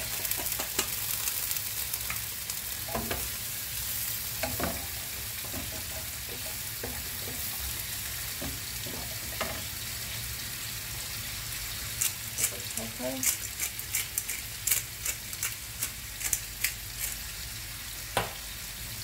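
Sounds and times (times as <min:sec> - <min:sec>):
mushrooms sizzling in a frying pan: 0:00.0 - 0:19.0
wooden spatula scraping a pan: 0:04.4 - 0:09.7.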